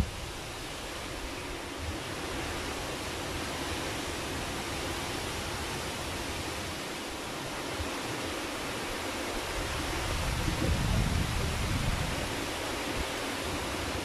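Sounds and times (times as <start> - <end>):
strong wind buffeting microphone: 9.4 - 14.0.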